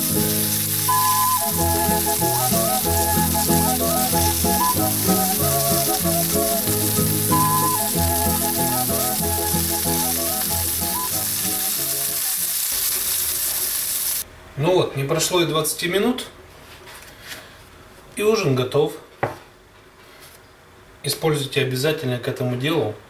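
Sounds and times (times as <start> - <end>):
background music with bass line: 0.0 - 11.8
cutlets sizzling in oil: 0.0 - 14.2.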